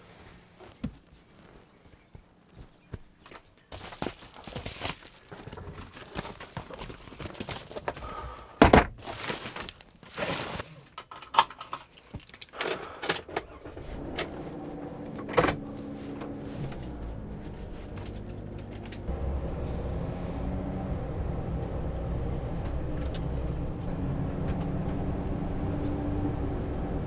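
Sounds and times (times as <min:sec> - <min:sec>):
van engine starting and idling: 0:12.6 - 0:27.0.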